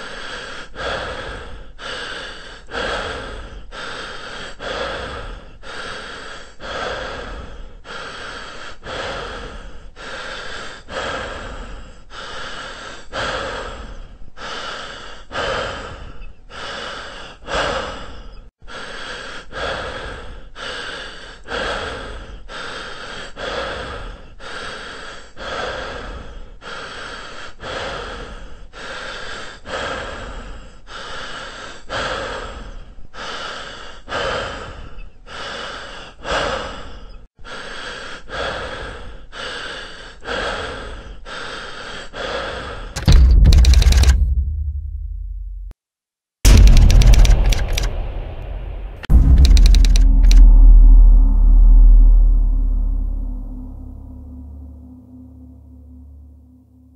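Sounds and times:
person breathing hard: 0:00.0 - 0:44.4.

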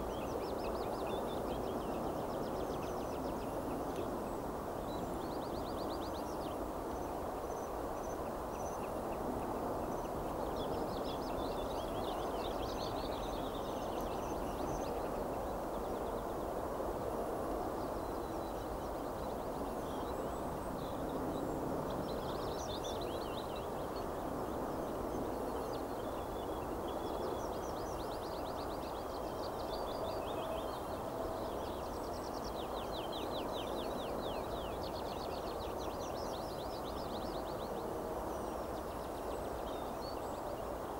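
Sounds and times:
small songbirds trilling: 0:00.0 - 0:40.9
steady low background noise: 0:00.0 - 0:40.9.

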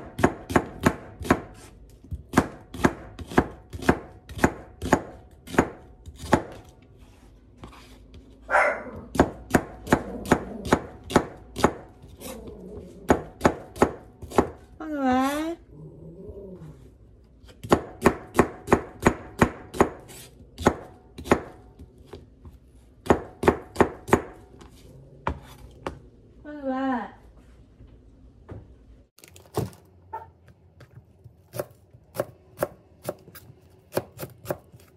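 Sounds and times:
knife chopping on cutting board: 0:00.0 - 0:06.7, 0:09.0 - 0:12.0, 0:13.1 - 0:14.7, 0:17.5 - 0:26.0, 0:31.4 - 0:34.9
dog barking: 0:08.5 - 0:09.0.

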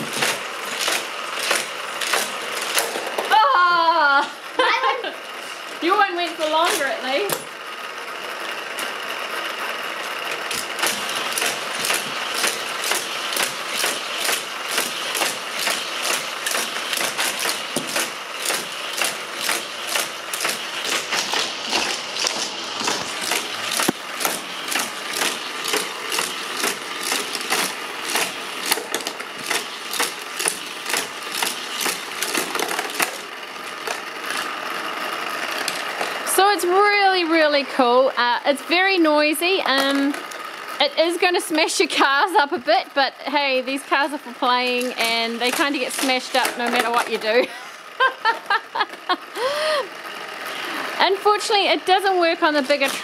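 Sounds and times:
toy cars clacking on plastic track: 0:00.0 - 0:03.4, 0:06.0 - 0:36.4, 0:39.6 - 0:40.5, 0:44.5 - 0:47.5, 0:50.1 - 0:53.0
toy booster rollers whirring: 0:00.0 - 0:53.0.

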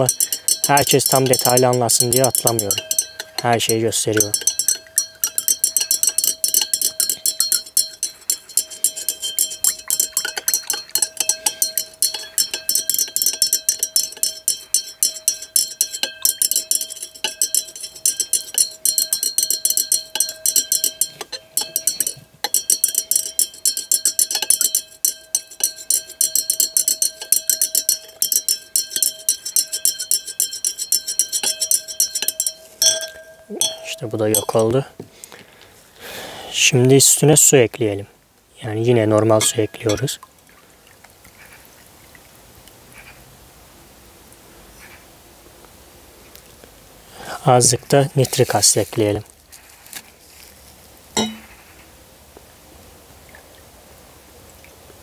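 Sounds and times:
glass rod clinking against beaker: 0:00.0 - 0:34.9, 0:39.3 - 0:40.2, 0:51.2 - 0:51.5.

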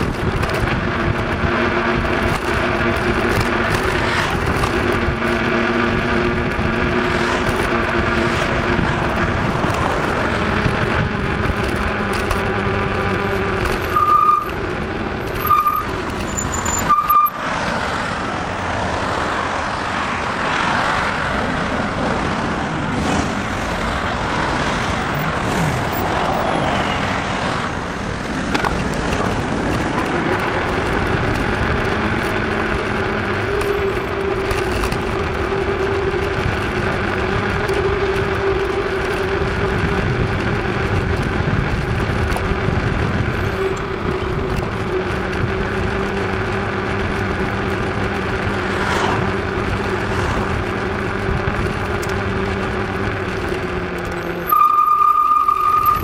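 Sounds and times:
bicycle tyres humming on asphalt: 0:00.0 - 0:56.0
road and traffic noise: 0:00.0 - 0:56.0
short high beeps: 0:13.9 - 0:14.5, 0:15.4 - 0:17.4, 0:54.5 - 0:56.0.

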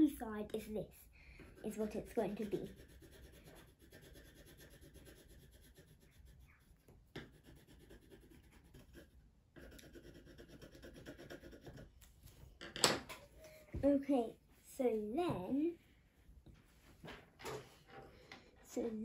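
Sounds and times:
pencil scratching on paper: 0:01.4 - 0:12.0.

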